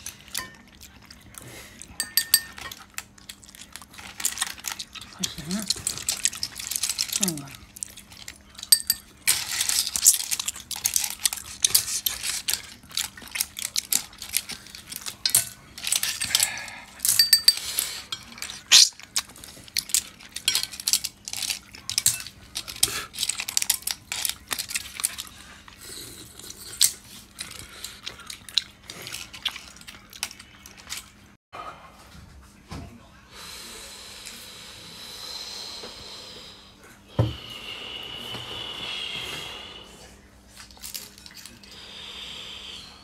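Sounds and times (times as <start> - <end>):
clam shells clinking in steel bowl: 2.0 - 18.9.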